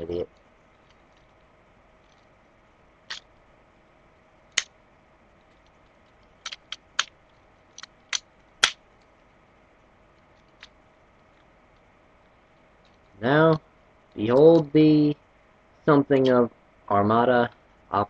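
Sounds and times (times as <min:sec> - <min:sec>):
plastic toy parts clicking: 0:06.4 - 0:07.2.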